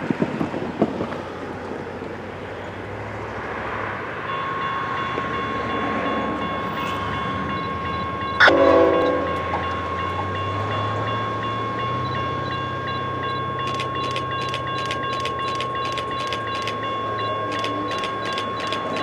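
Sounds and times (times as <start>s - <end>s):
train low rumble: 0.0s - 19.0s
steady high tone: 4.3s - 19.0s
train horn blast: 8.4s - 9.7s.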